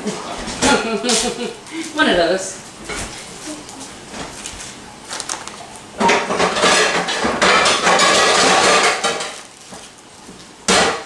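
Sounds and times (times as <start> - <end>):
pots and pans clattering: 6.0 - 9.5, 10.7 - 11.0.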